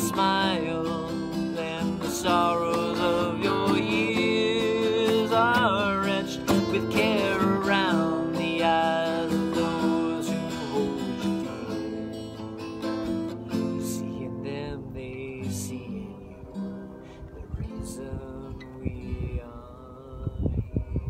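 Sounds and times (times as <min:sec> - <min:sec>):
man singing long notes: 0:00.0 - 0:12.5, 0:17.5 - 0:21.0
acoustic guitar strumming: 0:00.0 - 0:21.0.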